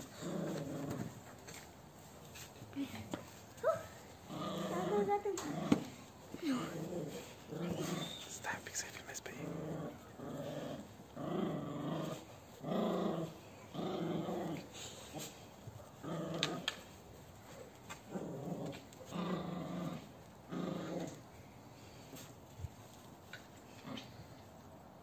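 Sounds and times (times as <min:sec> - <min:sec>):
dog growling: 0:00.0 - 0:01.2, 0:04.2 - 0:08.3, 0:09.3 - 0:16.9, 0:18.1 - 0:21.6.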